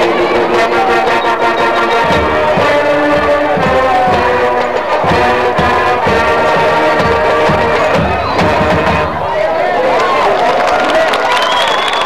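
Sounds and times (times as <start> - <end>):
brass holding chords: 0.0 - 9.3.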